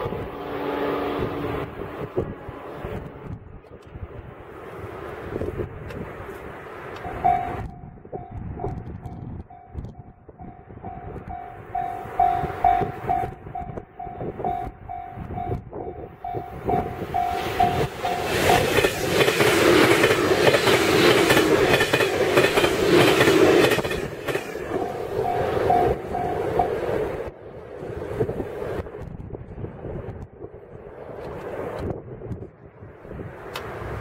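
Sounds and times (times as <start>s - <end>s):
electric train passing: 0.0s - 34.0s
level-crossing alarm bell ringing: 7.1s - 8.4s, 9.5s - 18.8s, 24.7s - 26.8s
wheels clacking over rail joints: 16.3s - 27.1s.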